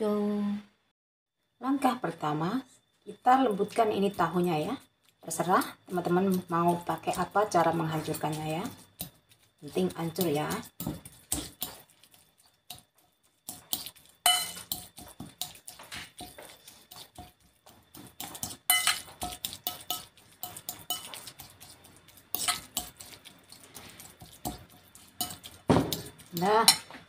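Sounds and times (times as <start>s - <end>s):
cutlery scraping ceramic bowl: 10.6s - 12.9s, 13.5s - 27.0s.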